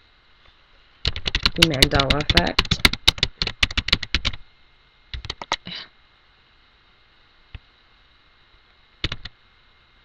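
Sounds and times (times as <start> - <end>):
typing on computer keyboard: 1.0 - 4.4, 5.1 - 5.6, 9.0 - 9.3.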